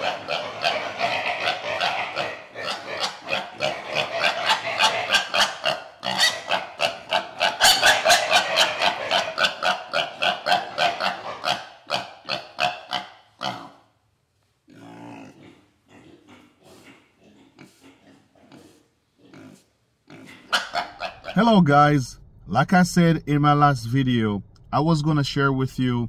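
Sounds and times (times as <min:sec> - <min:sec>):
piglet squealing: 0:00.0 - 0:13.8, 0:18.6 - 0:21.4.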